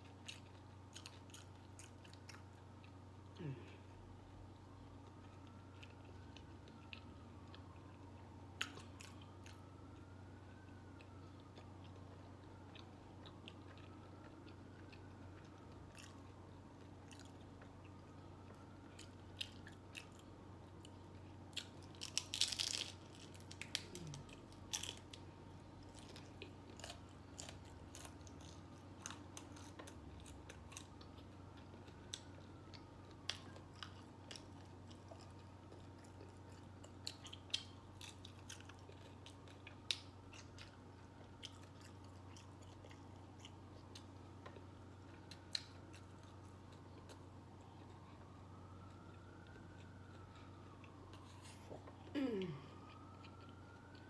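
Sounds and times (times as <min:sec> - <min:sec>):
person chewing: 0:00.0 - 0:03.9, 0:04.5 - 0:54.0
taco shell crunching: 0:10.6 - 0:51.7.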